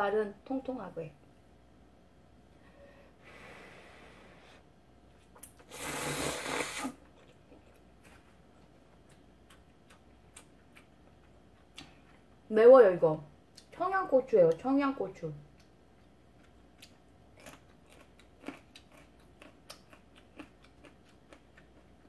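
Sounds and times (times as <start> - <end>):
person slurping noodles: 5.6 - 7.0
chewing with mouth clicks: 7.0 - 12.3, 15.5 - 22.0.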